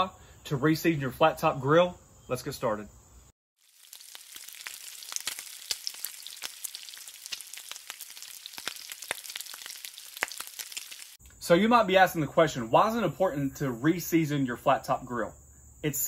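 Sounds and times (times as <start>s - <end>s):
fat popping and crackling: 3.6s - 11.2s
food sizzling on a griddle: 3.6s - 11.2s.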